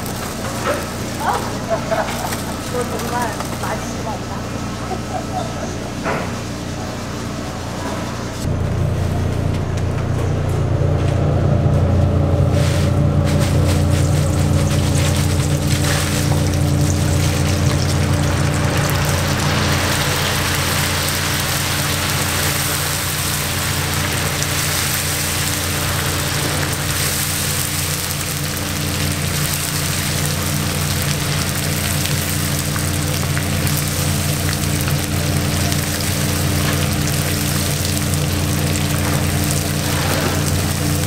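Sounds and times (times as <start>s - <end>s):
hot oil sizzling and bubbling: 0.0s - 3.8s, 12.6s - 41.0s
wire skimmers stirring: 0.0s - 8.4s, 12.3s - 41.0s
low hum: 0.0s - 41.0s.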